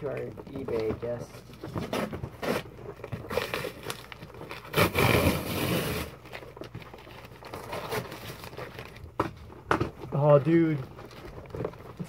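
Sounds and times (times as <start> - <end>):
cardboard rustling and knocking: 0.0 - 12.0
packing tape ripping: 1.8 - 9.0.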